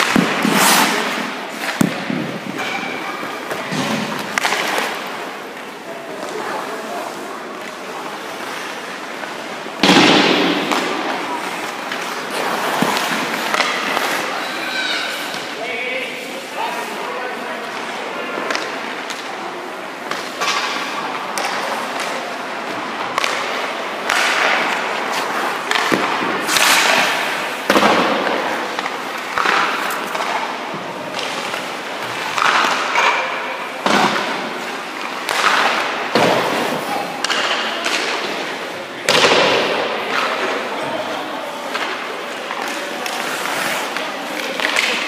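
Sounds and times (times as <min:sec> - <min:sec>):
stick and puck knocks: 0:00.0 - 0:05.1, 0:09.8 - 0:14.2, 0:23.0 - 0:24.9, 0:25.6 - 0:40.6
goalie pads thudding: 0:00.0 - 0:05.3, 0:09.7 - 0:14.5, 0:22.8 - 0:45.0
skate blades scraping ice: 0:00.0 - 0:45.0.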